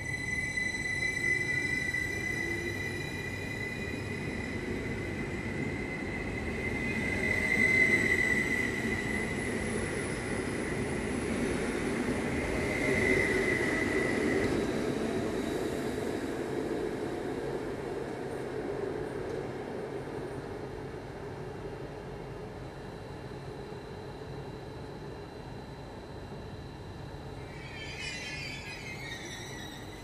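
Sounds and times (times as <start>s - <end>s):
train rolling past: 0.0s - 21.6s, 26.6s - 30.0s
high electrical whine: 27.4s - 30.0s.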